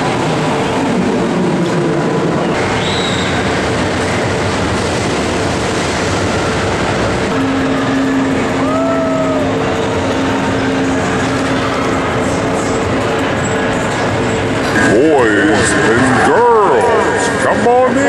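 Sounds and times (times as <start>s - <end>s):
amusement rides rumbling: 0.0s - 18.0s
steady hum: 0.0s - 18.0s
short squeal: 2.6s - 3.5s.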